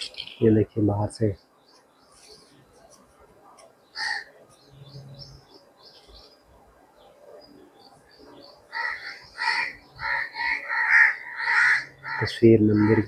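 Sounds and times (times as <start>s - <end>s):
birds chirping faintly: 0.0s - 13.0s
loud harsh bird calls: 3.8s - 6.4s, 7.4s - 13.0s.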